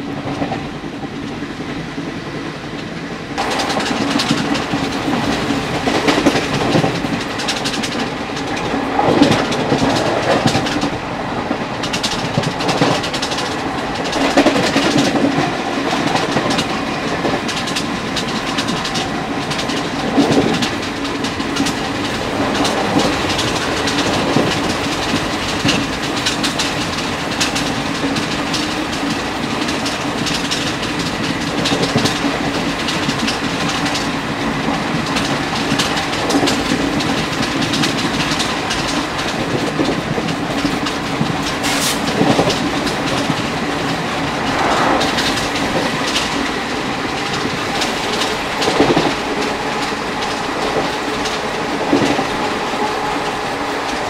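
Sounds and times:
train wheels clattering over joints: 0:03.4 - 0:44.4, 0:45.0 - 0:54.0
wind rush: 0:42.0 - 0:54.0.

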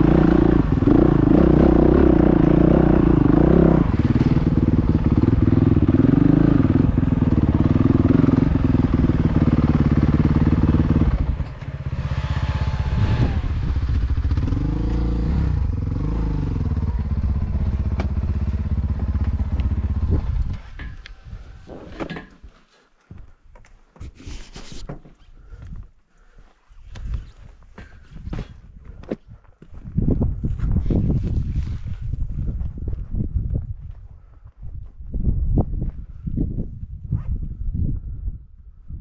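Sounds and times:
dirt bike engine revving: 0:00.0 - 0:20.5.

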